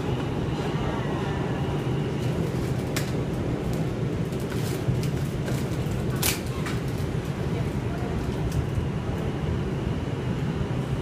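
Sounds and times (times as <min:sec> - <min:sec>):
subway car rumble: 0:00.0 - 0:11.0.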